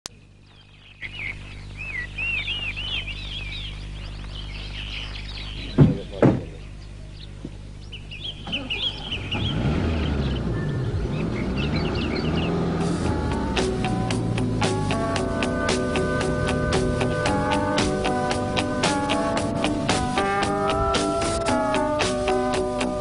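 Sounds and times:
birds chirping: 0.1 - 23.0
car engine starting and running: 7.9 - 23.0.

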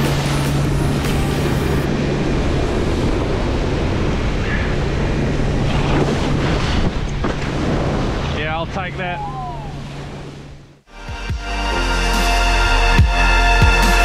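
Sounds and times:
water rushing and spraying: 0.0 - 4.3
wind buffeting microphone: 0.0 - 10.7.

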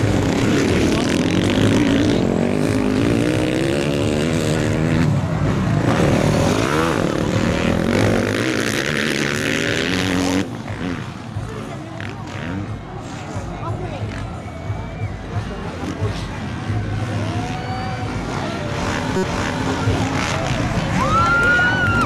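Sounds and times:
motocross engines revving: 0.0 - 22.0.

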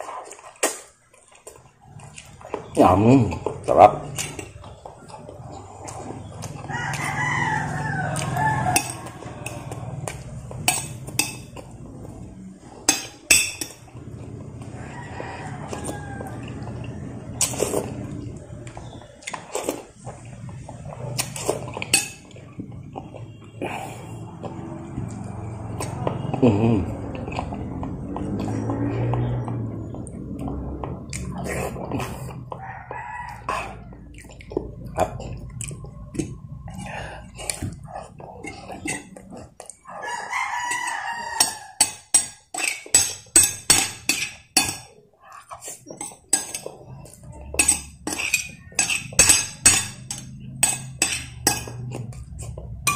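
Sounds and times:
chewing: 0.0 - 52.9
rooster crowing: 5.8 - 10.0, 14.6 - 17.4, 32.5 - 34.2, 39.9 - 42.1
metal spoon clinking on plate: 8.7 - 9.7, 10.6 - 11.6, 12.9 - 13.8, 21.3 - 22.4, 41.4 - 44.9, 45.9 - 52.9
spoon clinking on glass bowl: 47.5 - 51.9.

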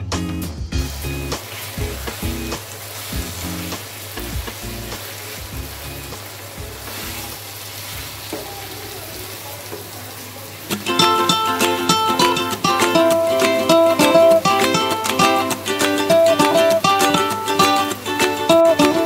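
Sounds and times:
plucked-string background music: 0.0 - 7.4, 10.7 - 19.0
meat and onions sizzling in oil: 0.7 - 14.6.

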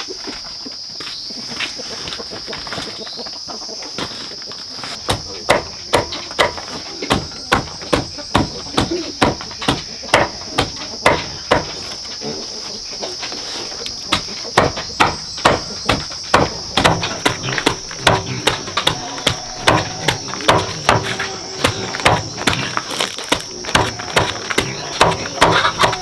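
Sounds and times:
high insect drone: 0.0 - 26.0
knife chopping on wooden block: 5.1 - 11.8, 14.1 - 26.0.

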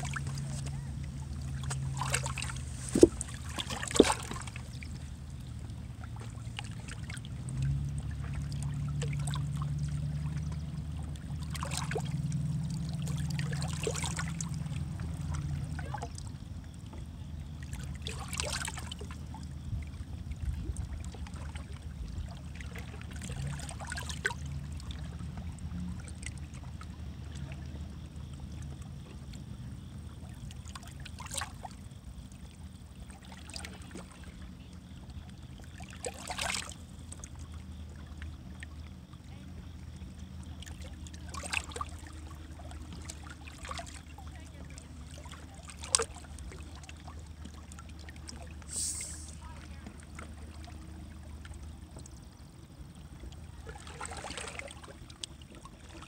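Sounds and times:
water lapping against rocks: 0.0 - 16.2, 33.0 - 56.0.

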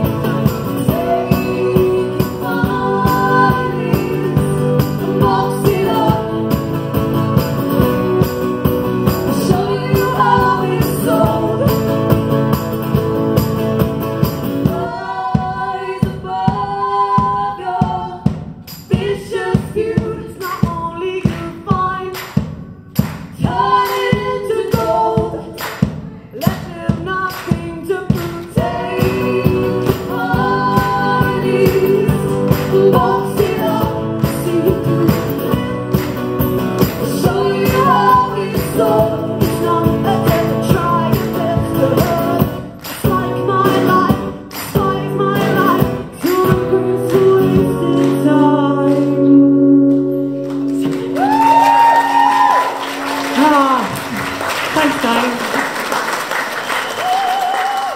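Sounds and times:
women singing: 0.0 - 7.0, 7.7 - 12.3, 14.6 - 22.2, 23.3 - 49.9
strummed acoustic guitars: 0.0 - 17.9, 26.4 - 51.6.

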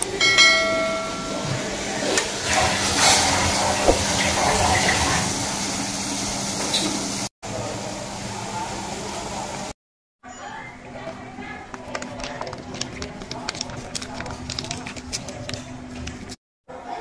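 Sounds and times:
sharp knock: 3.8 - 4.2.

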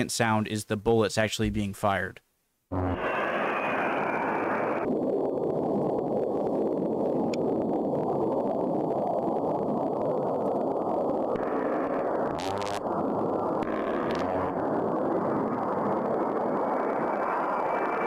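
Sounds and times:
jet engines roaring: 3.0 - 4.9.

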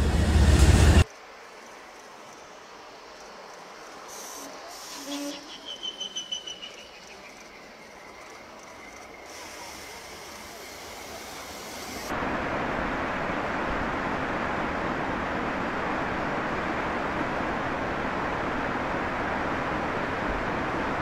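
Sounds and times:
snowplow train rushing through snow: 0.0 - 1.1, 8.1 - 21.0.

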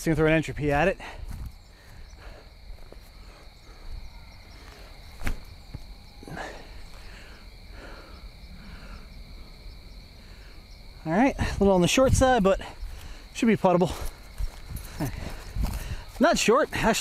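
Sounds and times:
crickets trilling: 0.0 - 17.0
disc snapping from throw: 5.2 - 5.5
rustling in dry leaves: 11.8 - 17.0.

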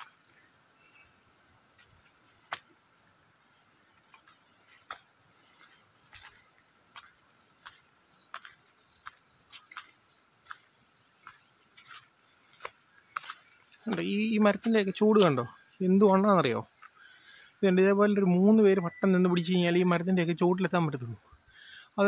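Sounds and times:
footsteps on dirt track: 0.0 - 17.1
faint insect chirping: 0.0 - 22.0.

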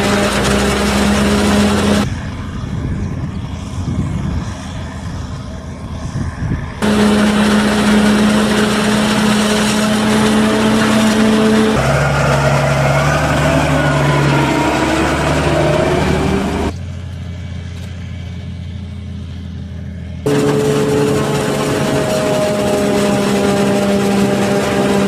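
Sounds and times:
forage harvester engine running: 0.0 - 2.6, 4.4 - 25.0
tractor engine passing: 0.0 - 2.6, 4.5 - 25.0
low steady engine drone: 0.0 - 25.0.

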